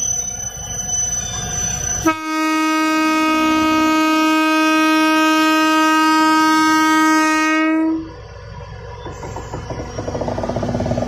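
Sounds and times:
locomotive horn blast: 2.0s - 8.2s.

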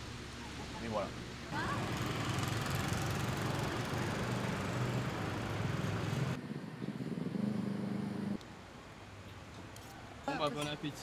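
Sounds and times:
motor vehicle running: 1.6s - 8.4s.

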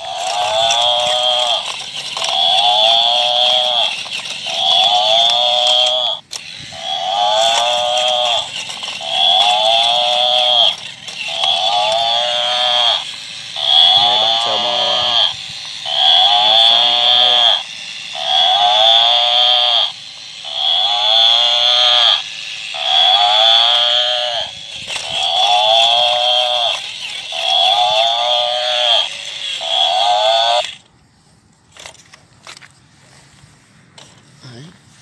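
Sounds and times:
steady high whine: 0.0s - 35.0s
tinny recorded animal call: 4.5s - 13.0s, 13.6s - 17.6s, 18.2s - 22.2s, 22.8s - 24.5s.

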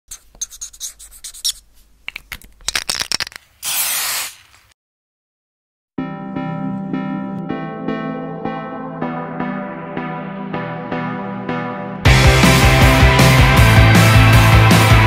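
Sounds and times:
scratchy paintbrush stroke scrapes: 0.1s - 1.9s
music with keyboard chords: 6.0s - 15.0s.

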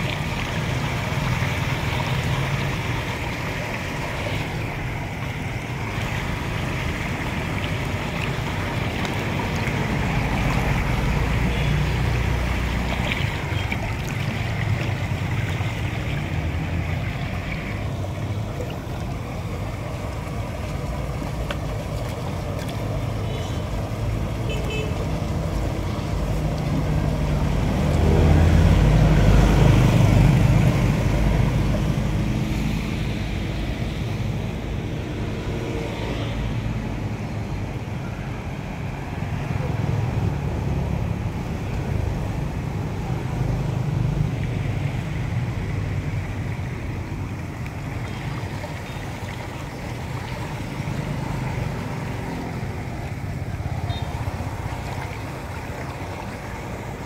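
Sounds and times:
water draining through grate: 0.0s - 32.8s.

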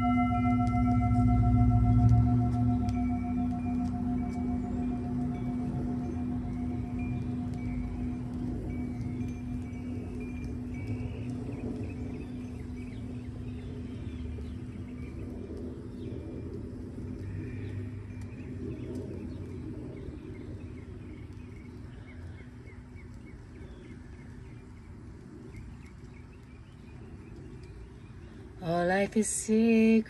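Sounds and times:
singing bowl ringing: 0.0s - 15.5s
low rumble: 0.0s - 29.2s
birds chirping: 0.0s - 30.0s.

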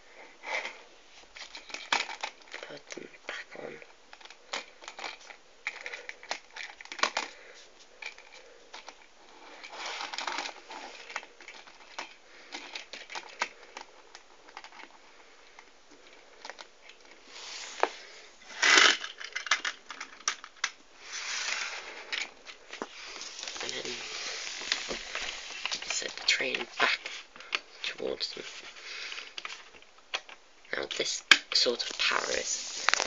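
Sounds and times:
plastic clicks and rattles: 1.4s - 3.0s, 4.1s - 7.4s, 8.0s - 17.2s, 18.6s - 20.8s, 29.2s - 30.4s.

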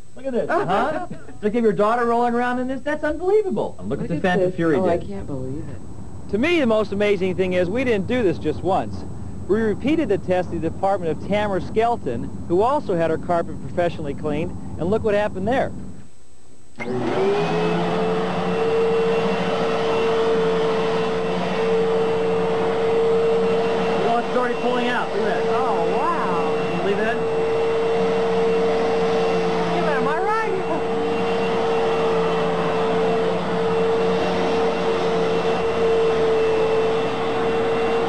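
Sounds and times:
vacuum cleaner motor whine: 4.0s - 5.1s, 16.8s - 38.0s.

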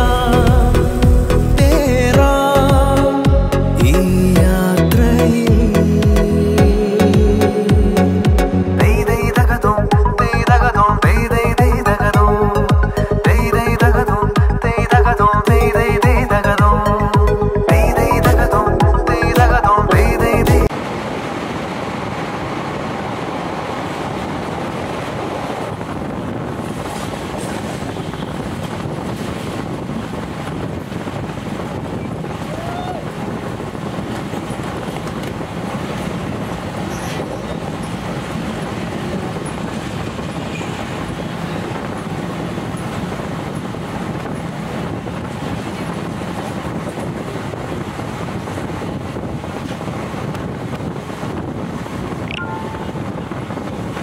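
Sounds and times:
passenger train running on track: 0.0s - 3.3s, 16.5s - 54.0s.

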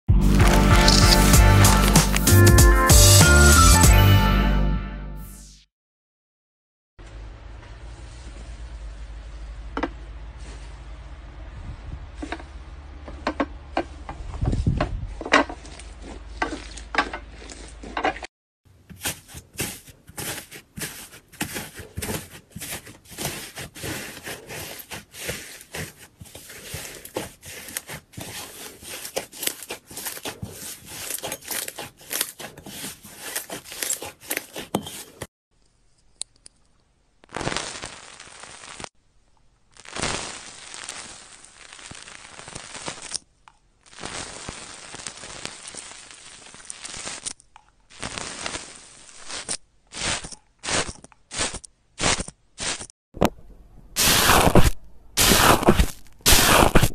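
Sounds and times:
air pockets popping: 0.2s - 2.4s, 54.0s - 56.9s
slime tearing stickily: 54.0s - 56.9s.

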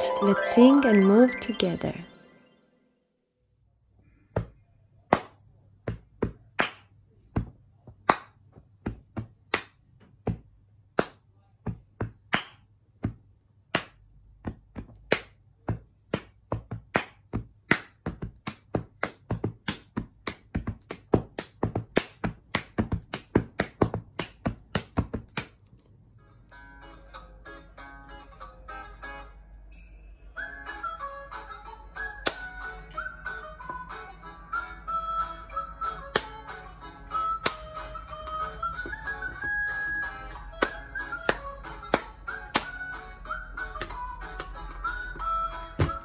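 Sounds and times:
hands clapping and patting chest: 4.4s - 25.7s, 32.2s - 32.5s, 36.1s - 36.5s, 37.4s - 43.0s, 43.7s - 46.0s.

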